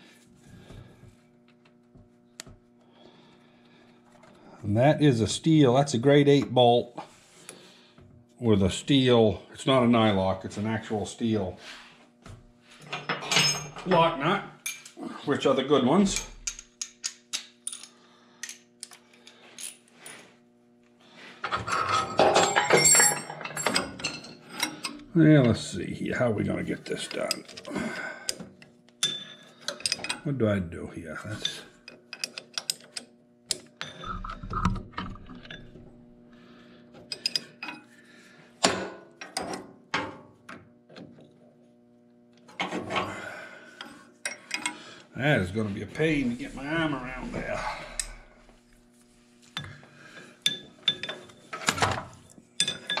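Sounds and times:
metal tools clinking: 12.9s - 15.0s, 21.4s - 25.6s, 37.1s - 37.8s, 50.4s - 52.0s, 52.6s - 53.0s
wrench clicking on metal bolts: 31.9s - 33.6s.

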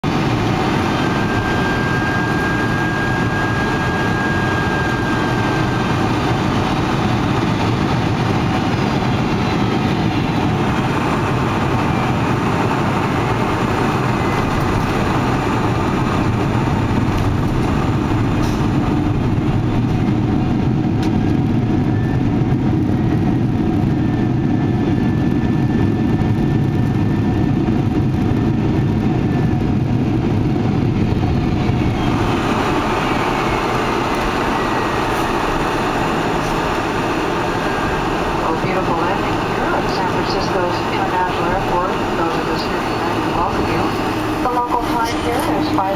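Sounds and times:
airplane cabin engine rumble: 0.0s - 45.9s
faint high whine: 0.8s - 5.9s.

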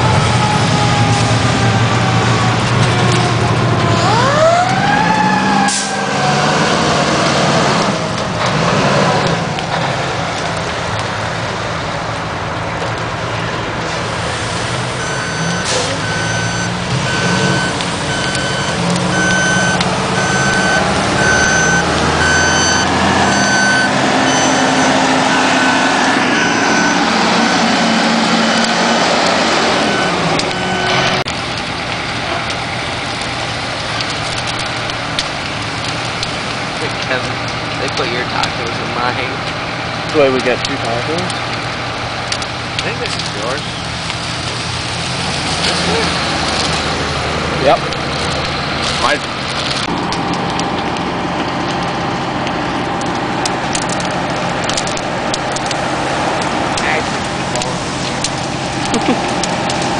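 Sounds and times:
diesel engines running: 0.0s - 59.9s
backup alarm beeping: 15.0s - 28.8s, 29.7s - 31.2s
siren winding up: 15.0s - 28.8s.

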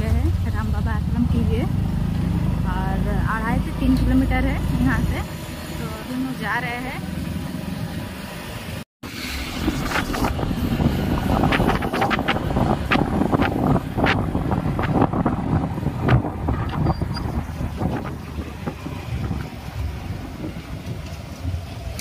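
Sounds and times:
motorcycle engine: 0.0s - 8.3s
road noise: 0.0s - 22.0s
wind buffeting microphone: 9.3s - 22.0s.

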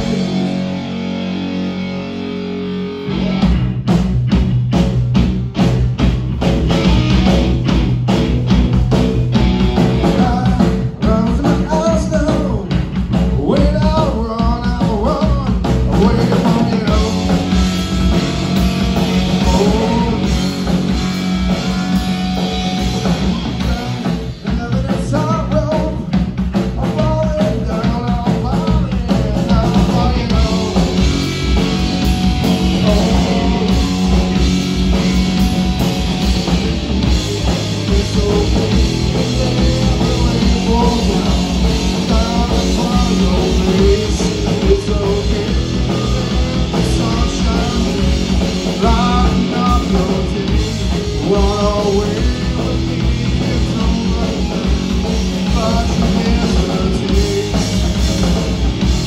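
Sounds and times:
man singing: 0.0s - 0.8s, 10.0s - 18.3s, 18.9s - 20.9s, 21.5s - 34.5s, 37.0s - 58.6s
bass guitar: 0.0s - 59.0s
drum kit: 0.0s - 59.0s
electric guitar: 0.0s - 59.0s.

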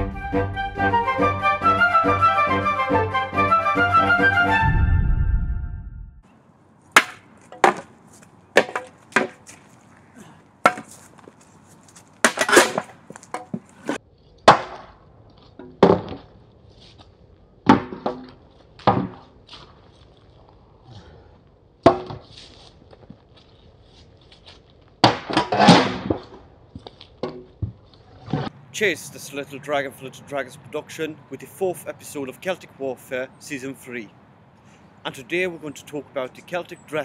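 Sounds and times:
wooden swords striking shields: 7.0s - 7.9s, 8.6s - 9.5s, 10.6s - 11.0s, 12.2s - 15.0s, 15.6s - 16.3s, 17.6s - 19.4s, 21.8s - 22.3s, 25.0s - 26.5s, 27.2s - 28.5s.

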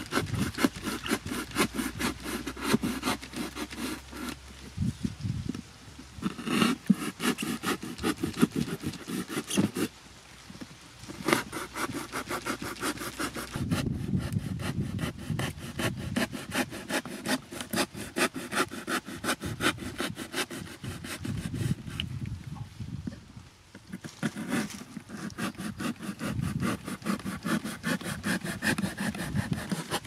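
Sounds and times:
knife sawing through cardboard: 0.0s - 4.4s, 6.2s - 9.9s, 11.1s - 22.0s, 23.9s - 30.0s.

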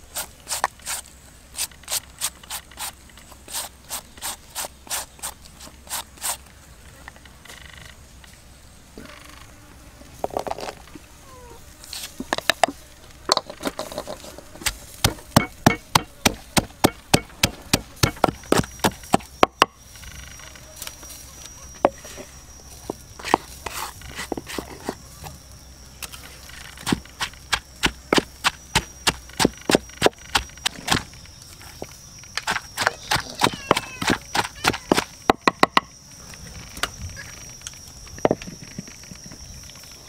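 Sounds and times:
wooden pestle pounding in mortar: 15.0s - 19.7s, 26.8s - 31.1s, 32.4s - 35.9s.

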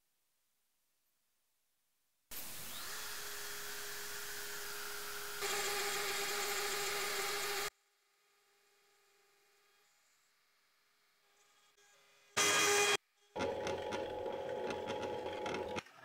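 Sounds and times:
router spindle whining: 2.4s - 7.7s.

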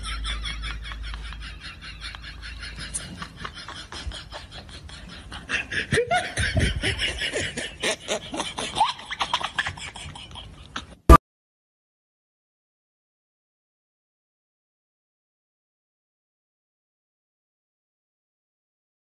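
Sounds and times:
person laughing: 0.0s - 11.0s.

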